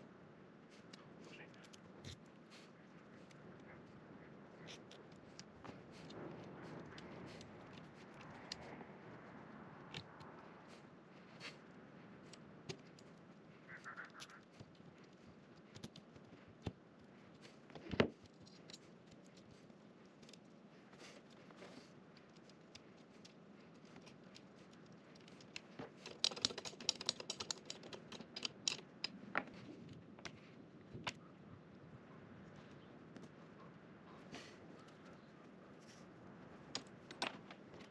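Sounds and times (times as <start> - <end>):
metal and plastic parts clicking: 22.3 - 29.6
rapid clicking: 24.0 - 29.2.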